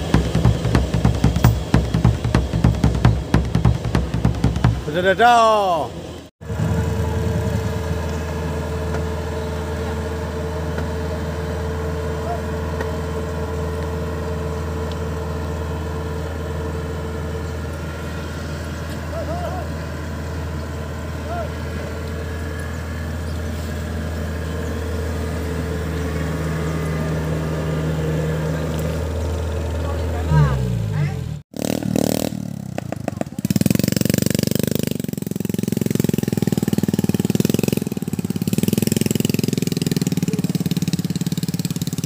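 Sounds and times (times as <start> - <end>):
higher hum: 0.0 - 29.1
diesel engine running: 0.0 - 42.0.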